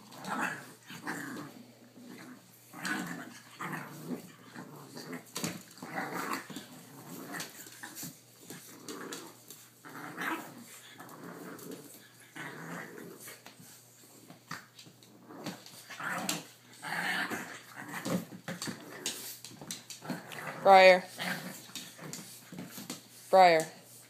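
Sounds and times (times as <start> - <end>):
dogs play-growling: 0.0 - 24.0.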